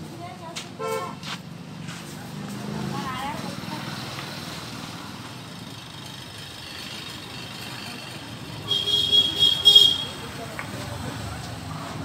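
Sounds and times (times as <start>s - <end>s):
street traffic rumble: 0.0s - 12.0s
vehicle horn honking: 0.8s - 1.2s, 8.6s - 10.2s.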